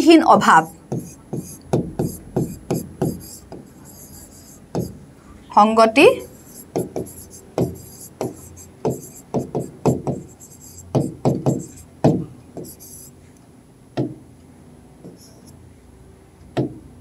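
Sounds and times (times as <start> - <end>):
marker pen writing on glass: 0.4 - 5.0, 6.2 - 13.1, 15.1 - 15.5.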